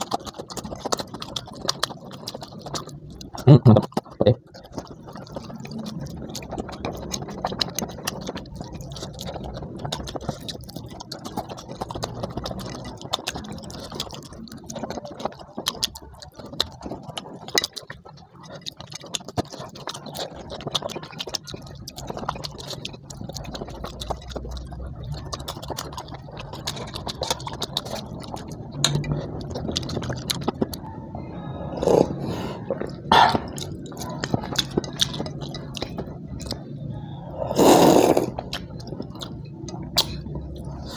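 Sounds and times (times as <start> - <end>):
man chewing food: 0.0 - 40.9.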